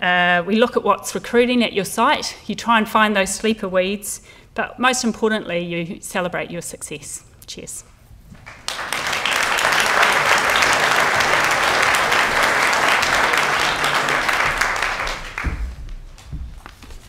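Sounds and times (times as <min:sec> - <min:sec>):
audience applauding: 0:08.4 - 0:15.8
low thumps: 0:14.4 - 0:16.8.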